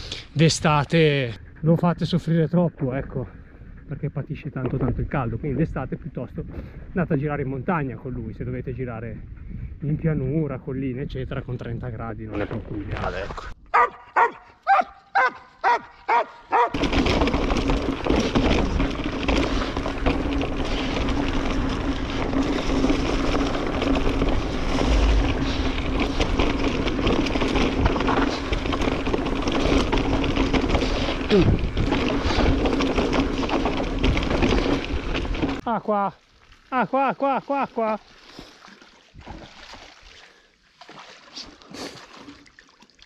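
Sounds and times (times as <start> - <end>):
dog barking: 13.7 - 16.8
bike rolling on dirt trail: 15.2 - 35.6
low hum: 23.5 - 29.5.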